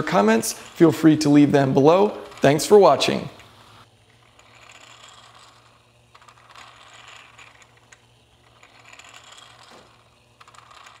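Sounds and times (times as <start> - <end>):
steady low hum: 0.0 - 11.0
plastic gears clicking and rattling: 4.0 - 11.0.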